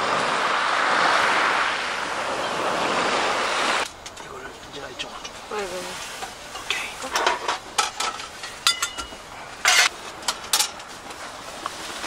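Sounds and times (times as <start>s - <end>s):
metal utensils rattling: 6.5s - 10.9s
metal cookware clicking and knocking: 7.2s - 10.8s
ringing metal clink: 8.0s - 9.9s.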